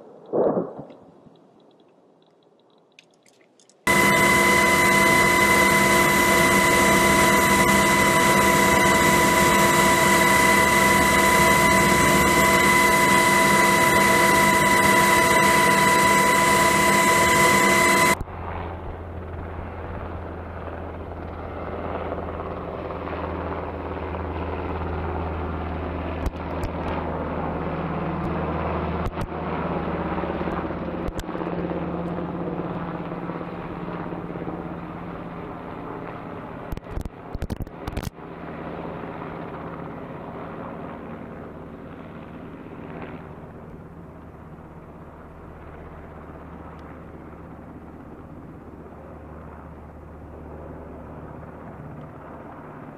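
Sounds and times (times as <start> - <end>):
sharp clicks: 0.2 - 18.2, 36.7 - 38.1
helicopter flying by: 3.9 - 52.9.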